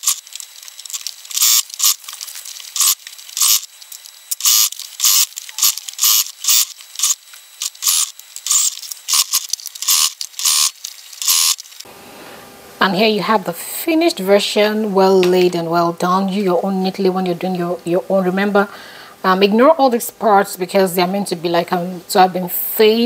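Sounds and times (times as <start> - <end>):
electric sewing machine stitching: 0.0 - 11.8.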